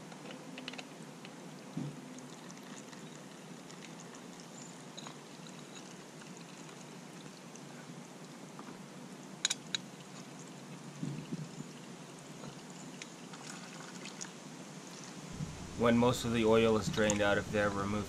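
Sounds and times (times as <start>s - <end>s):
oil trickling into a pan: 2.2s - 7.7s, 9.8s - 15.2s
low knock: 15.4s - 15.8s.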